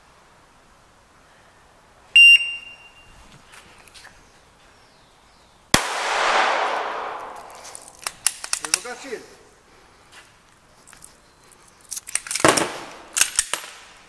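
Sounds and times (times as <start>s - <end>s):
shot timer beep: 2.2s - 3.0s
pistol shot with echo: 5.8s - 7.6s, 12.4s - 13.8s.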